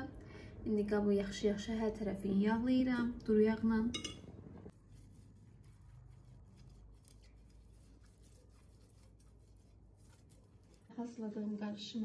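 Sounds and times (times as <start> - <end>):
pastry brush on glass dish: 3.9 - 12.0.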